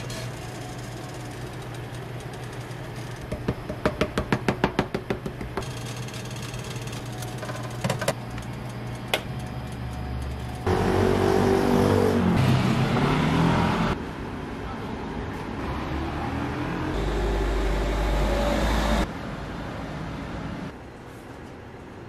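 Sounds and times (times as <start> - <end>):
street traffic noise: 8.1 - 22.0.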